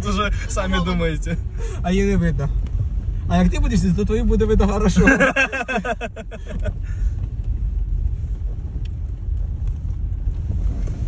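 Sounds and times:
vehicle rumble: 0:00.0 - 0:11.0
wind noise on microphone: 0:06.6 - 0:11.0.

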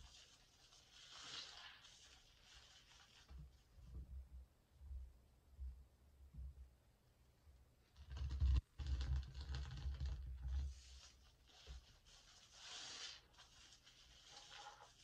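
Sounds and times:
sponge squishing in soapy water: 0:00.0 - 0:03.8, 0:10.6 - 0:15.0.

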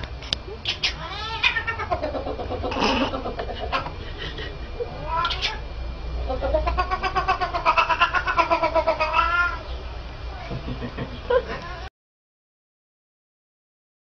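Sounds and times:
cat yowling: 0:00.6 - 0:03.9, 0:04.9 - 0:05.6, 0:06.3 - 0:09.7, 0:11.4 - 0:11.9.

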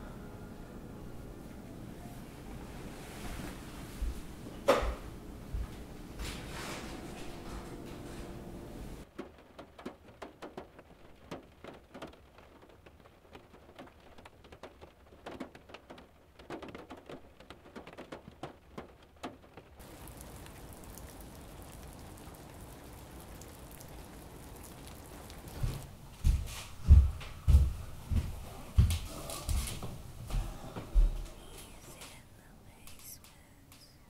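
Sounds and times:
steady hiss: 0:19.8 - 0:34.0.

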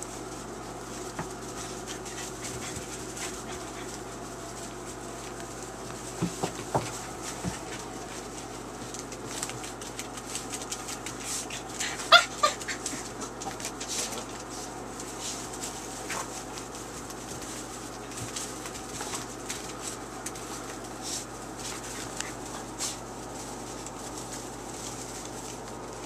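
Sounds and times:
paws scratching in wood shavings: 0:00.0 - 0:26.0
puppy yelps: 0:11.8 - 0:12.9.

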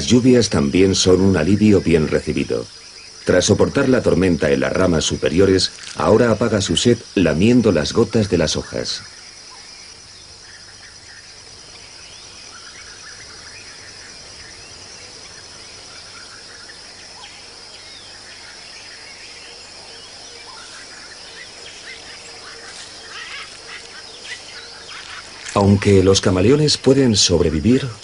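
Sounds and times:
insect chorus: 0:00.0 - 0:28.0
bird chirps: 0:07.5 - 0:26.6.

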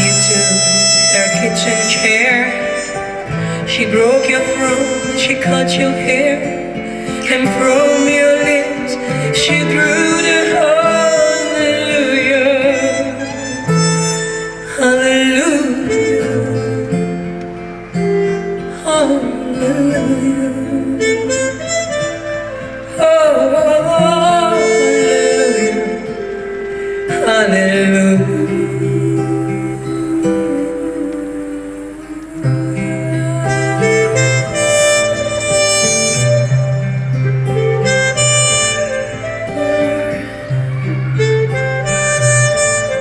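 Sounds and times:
trumpet playing slow melody: 0:00.0 - 0:05.4, 0:32.7 - 0:43.0
guitar chords: 0:00.0 - 0:43.0.

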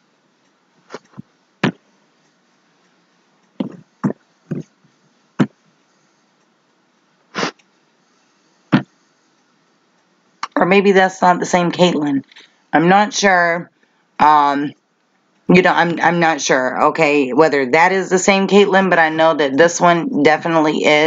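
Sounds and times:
short sharp noises: 0:07.3 - 0:07.7.

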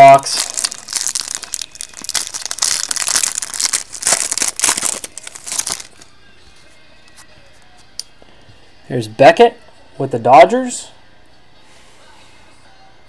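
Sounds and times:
wrappers crinkling and tearing: 0:00.0 - 0:06.1.

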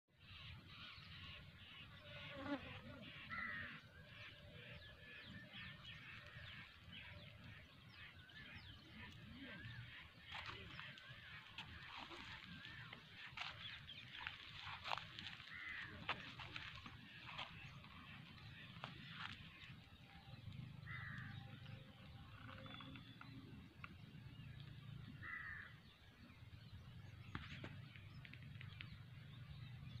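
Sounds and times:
small birds chirping: 0:00.3 - 0:30.0
crow cawing: 0:03.2 - 0:04.4, 0:09.6 - 0:19.4, 0:20.8 - 0:21.6, 0:25.2 - 0:25.8
low outdoor rumble: 0:05.4 - 0:30.0.

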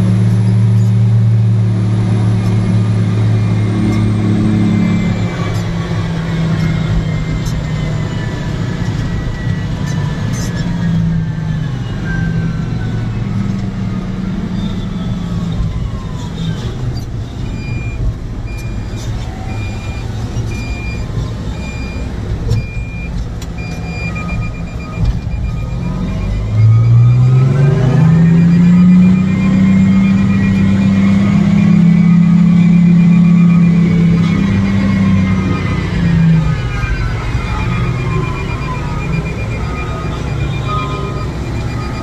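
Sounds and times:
heavy diesel engine running: 0:00.0 - 0:42.0
reversing alarm beeping: 0:00.0 - 0:42.0.

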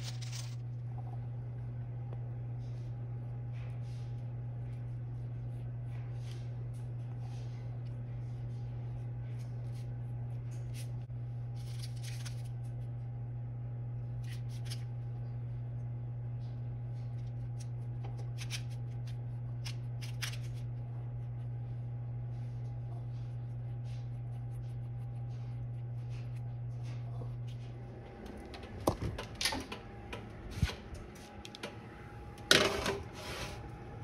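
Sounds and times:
steady low hum: 0:00.0 - 0:34.0
pastry brush brushing: 0:22.3 - 0:27.2.

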